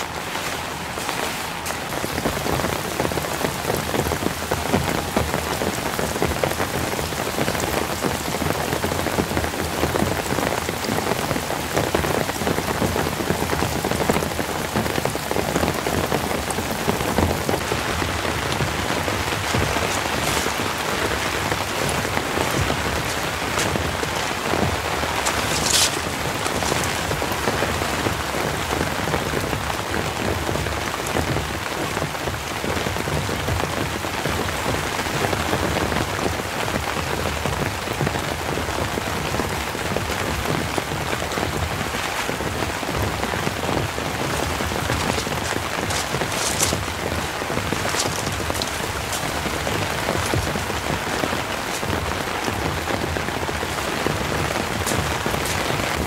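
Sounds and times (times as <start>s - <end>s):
rain ticking on tent fabric: 0.0s - 56.0s.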